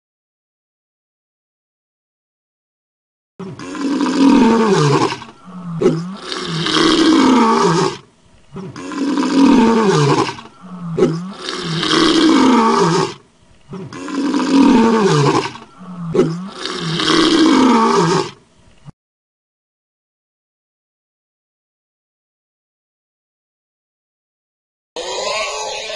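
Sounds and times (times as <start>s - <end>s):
lion roaring: 3.4s - 18.4s.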